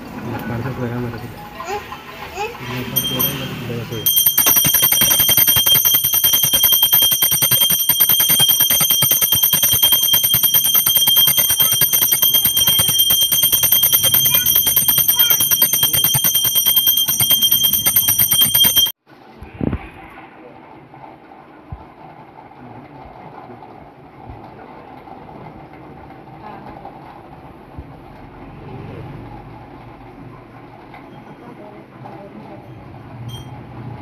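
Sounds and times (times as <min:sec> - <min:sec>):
temple bell clanging: 0:03.0 - 0:18.9.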